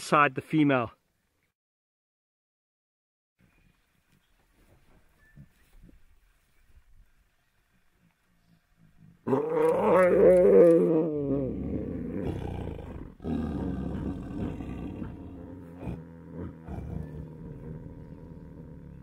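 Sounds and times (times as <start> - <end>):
tigers snarling and growling: 9.2 - 19.0
tiger loud wavering call: 9.3 - 19.0.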